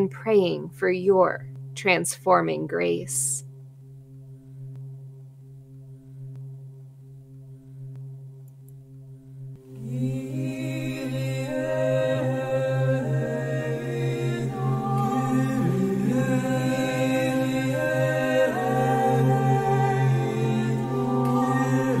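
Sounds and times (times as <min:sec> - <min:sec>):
low drone: 0:09.0 - 0:22.0
chant-like held notes: 0:09.6 - 0:22.0.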